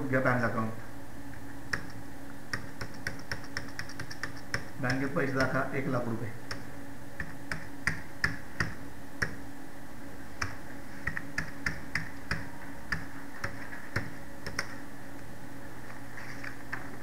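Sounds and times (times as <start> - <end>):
steady low hum: 0.0 - 17.0
keyboard keys clicking: 1.7 - 5.6, 10.4 - 14.8.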